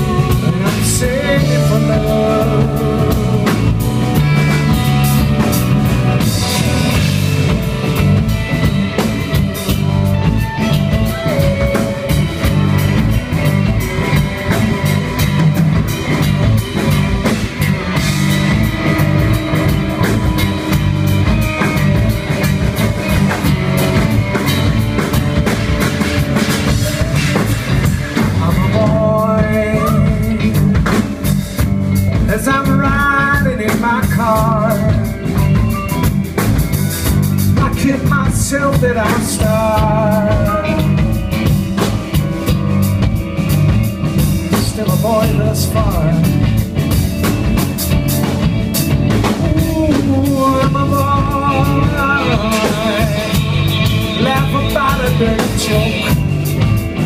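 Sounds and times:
person singing: 0.0s - 5.4s, 26.4s - 31.3s, 32.2s - 35.5s, 37.6s - 41.2s, 44.5s - 46.5s, 49.2s - 56.8s
live rock band playing: 0.0s - 57.0s.

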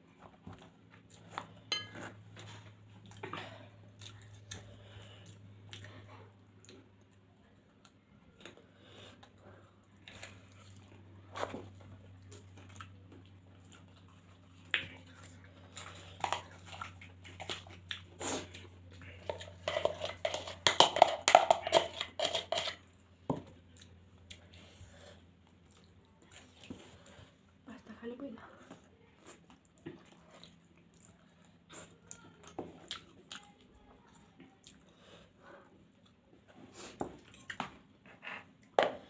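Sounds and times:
faint low hum: 0.0s - 39.0s
chewing noodles: 2.4s - 22.9s, 29.0s - 36.6s.

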